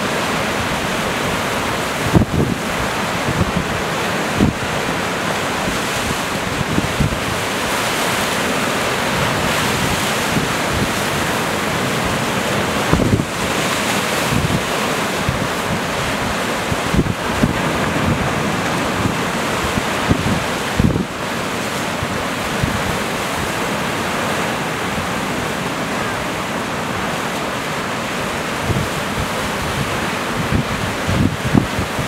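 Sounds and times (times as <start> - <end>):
sea surf breaking on rocks: 0.0 - 32.0
wind buffeting microphone: 1.8 - 4.8, 5.5 - 8.0, 9.2 - 23.6, 28.3 - 32.0.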